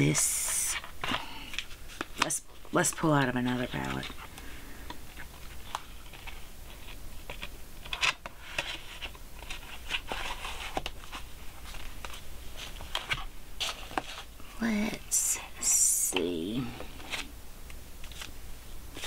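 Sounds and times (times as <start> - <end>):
cardboard rustling and scraping: 5.1 - 17.3.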